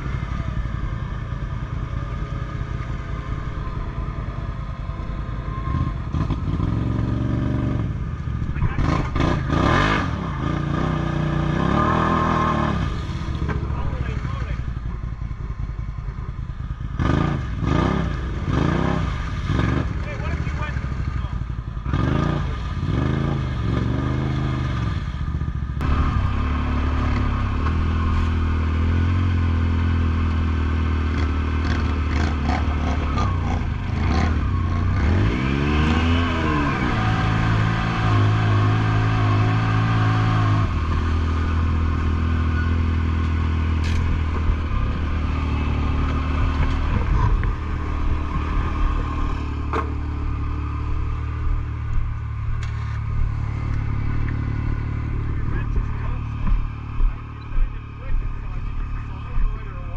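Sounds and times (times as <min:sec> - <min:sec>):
off-road vehicle engine: 0:00.0 - 0:59.9
knocks and rattles of vehicle: 0:43.1 - 0:45.1, 0:46.0 - 0:59.9.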